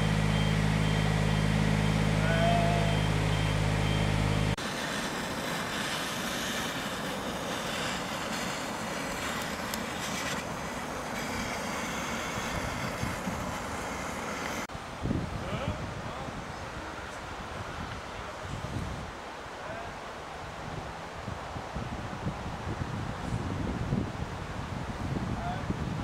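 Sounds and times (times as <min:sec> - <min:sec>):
engine running: 0:00.0 - 0:14.7
steady rushing noise: 0:00.0 - 0:26.0.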